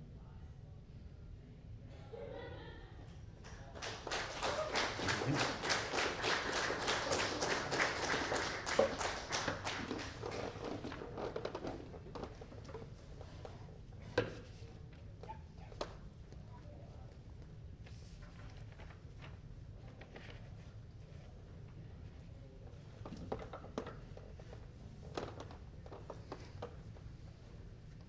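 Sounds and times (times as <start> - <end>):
audience applauding: 3.5 - 11.0.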